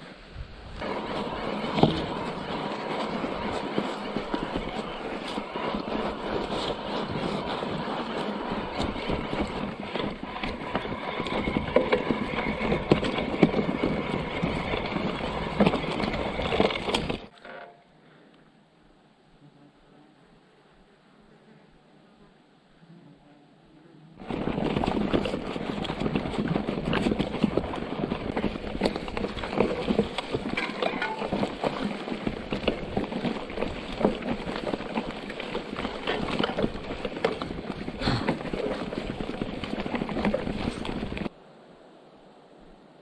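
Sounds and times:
brush swishing against bike: 0.8 - 17.1
mountain bike rattling: 0.8 - 17.7, 24.2 - 41.3
bike knocking over sleepers: 24.2 - 41.2.

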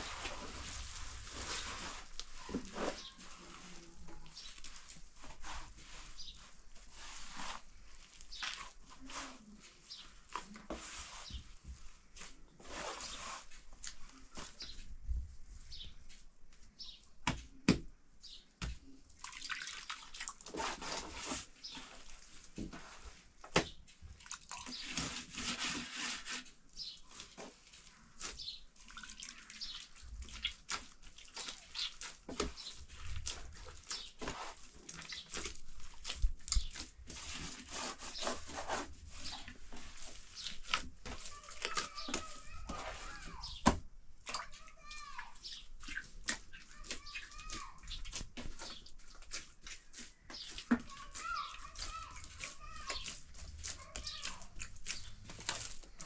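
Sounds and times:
dough squishing and slapping: 0.0 - 56.0
hand dipping in water: 19.1 - 21.0.

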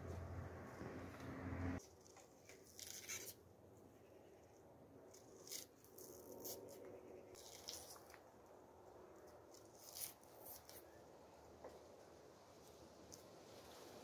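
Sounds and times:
knife scraping onion skin: 2.4 - 3.4, 5.2 - 8.2, 9.5 - 10.9.

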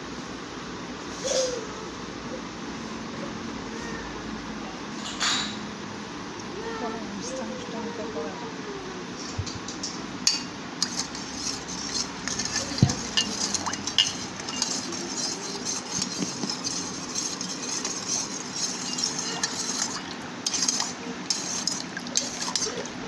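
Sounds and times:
spoon scraping metal pot: 10.3 - 23.0.

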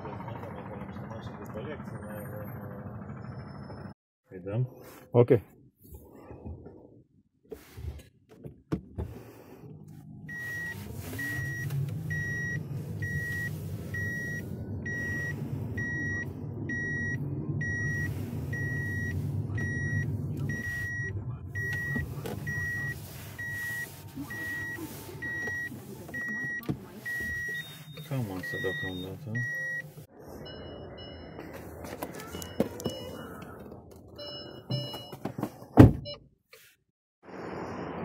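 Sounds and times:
low rumble of car moving: 0.0 - 36.1
car warning chime beeping: 10.3 - 33.5, 34.1 - 35.2.

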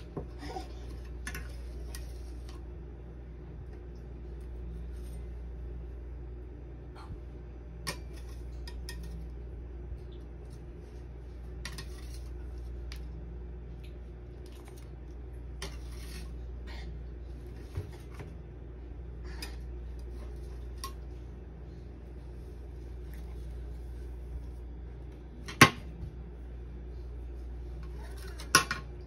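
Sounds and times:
steady low hum: 0.0 - 29.0
metal spatula scraping and clicking: 11.6 - 12.3.

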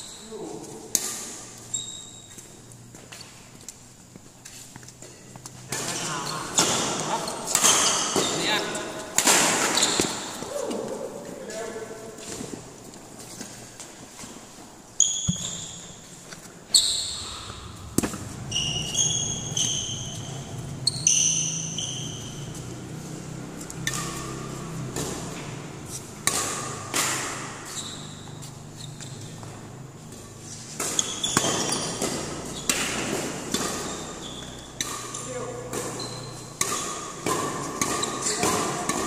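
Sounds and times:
shoes squeaking on court: 0.0 - 39.0
rackets striking shuttlecock: 4.9 - 11.0, 23.6 - 39.0.

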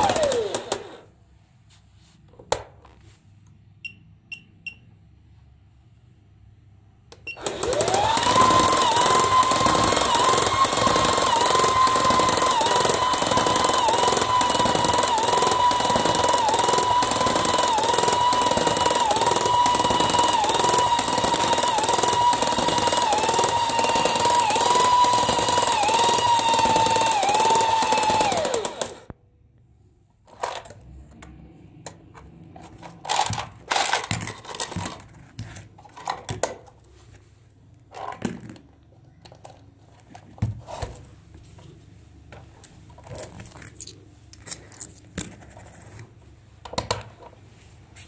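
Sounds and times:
electric motor whining: 0.0 - 1.0, 7.4 - 29.1
plastic toy clicks and knocks: 33.0 - 35.2.

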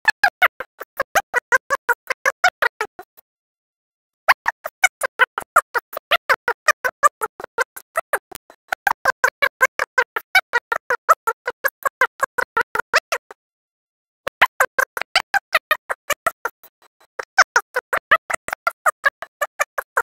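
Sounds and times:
staccato clicking music: 4.4 - 13.2, 14.4 - 20.0.

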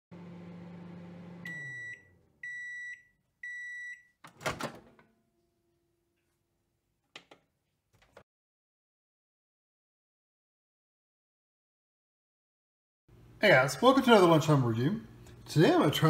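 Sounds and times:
microwave oven humming: 0.1 - 5.2
microwave timer beeps: 1.2 - 4.2.

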